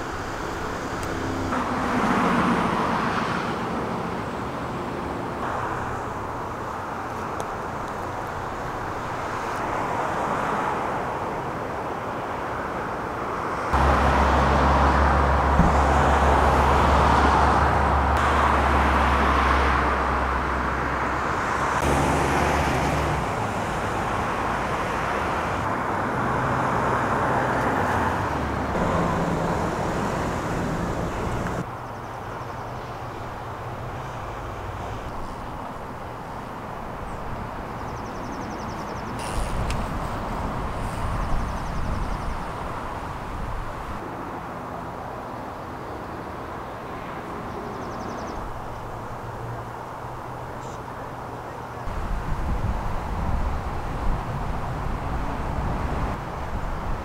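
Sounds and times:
low engine hum: 0.0s - 9.8s, 13.7s - 31.7s
road traffic noise: 0.0s - 57.0s.

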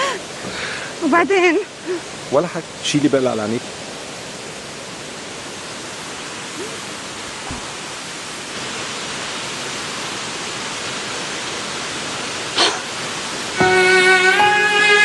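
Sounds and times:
running water rushing: 0.0s - 15.0s
soft thump: 7.4s - 7.8s.

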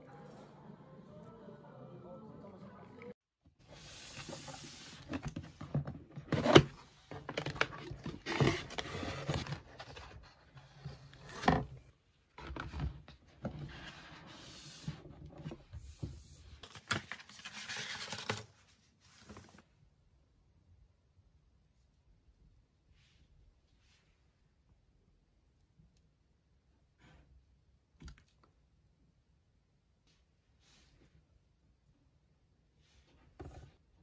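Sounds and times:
cardboard rustling and scraping: 3.7s - 11.8s.

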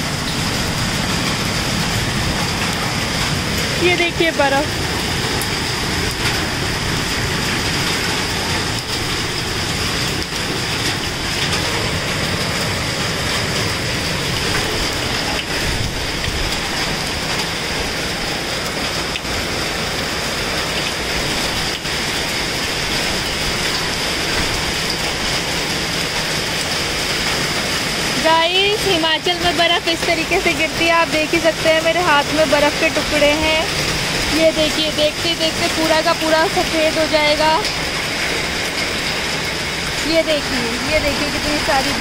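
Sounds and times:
heavy rain and hail: 0.0s - 42.0s.

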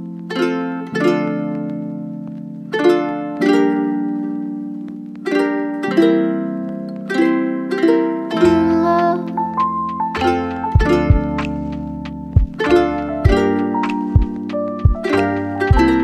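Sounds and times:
plucked notes ringing: 0.0s - 16.0s
held low chord: 8.3s - 16.0s.

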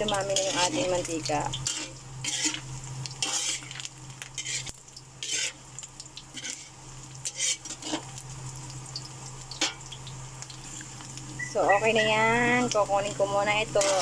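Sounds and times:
metal spatula scraping wok: 0.0s - 5.6s, 6.3s - 8.1s, 13.2s - 14.0s
meat sizzling: 0.0s - 14.0s.

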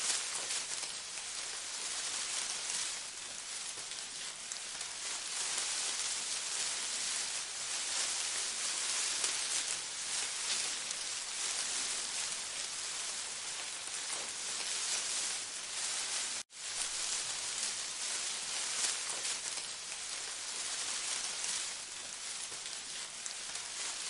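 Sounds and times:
rain-like hiss: 0.0s - 24.0s.

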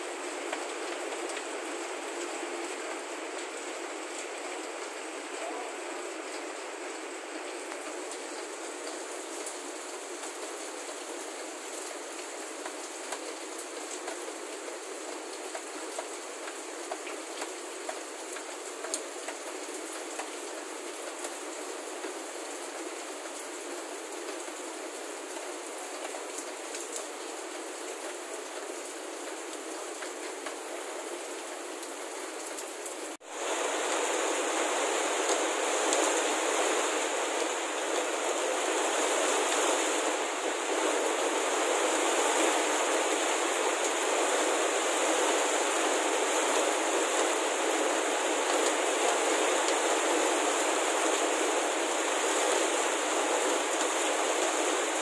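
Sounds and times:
heavy rain hissing: 0.0s - 55.0s
raindrop ticks: 15.4s - 19.5s.

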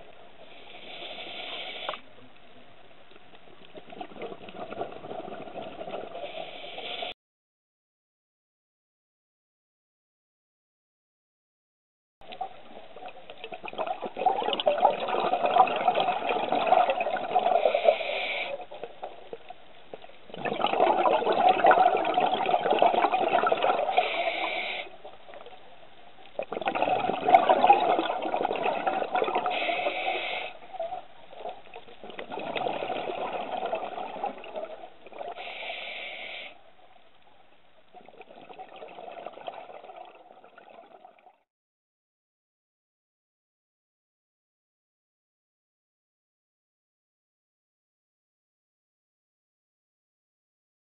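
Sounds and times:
regulator exhale bubbling: 3.7s - 7.2s, 12.4s - 19.5s, 20.3s - 25.6s, 26.4s - 36.6s, 38.0s - 41.3s.

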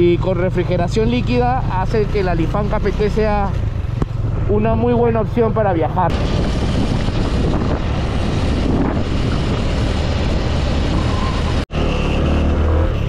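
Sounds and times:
motorcycle engine drone: 0.0s - 13.0s
wind rushing over microphone: 3.7s - 11.6s.

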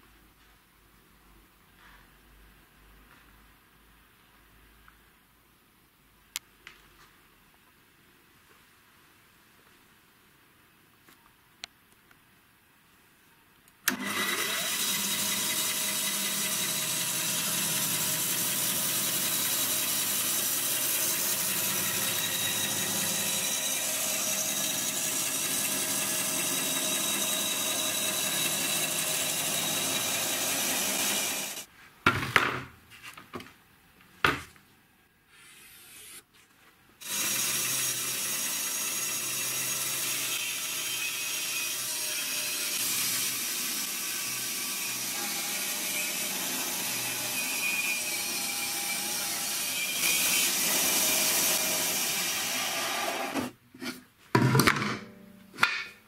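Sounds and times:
bandsaw cutting particleboard: 13.9s - 31.7s, 37.0s - 53.6s
bandsaw motor whining: 13.9s - 31.7s, 37.0s - 53.5s.

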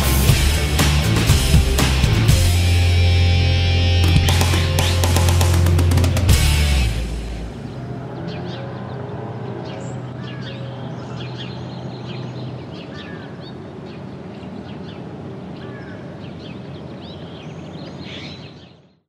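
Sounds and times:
songbirds chirping: 0.0s - 19.0s.

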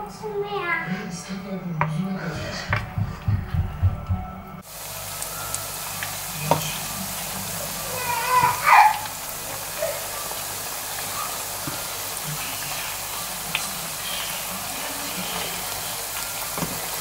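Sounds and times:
frying in hot oil sizzle: 4.6s - 17.0s.

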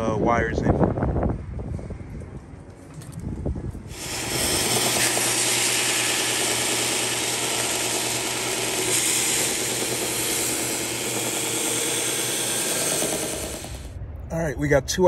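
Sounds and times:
belt sander grinding plastic: 3.9s - 13.9s.

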